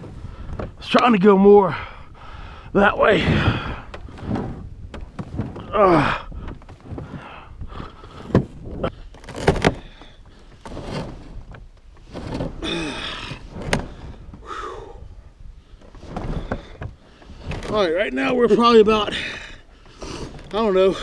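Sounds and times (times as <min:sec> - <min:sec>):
ice creaking: 0:02.3 - 0:15.0, 0:15.6 - 0:21.0
ice crunching against kayak hull: 0:03.3 - 0:14.5.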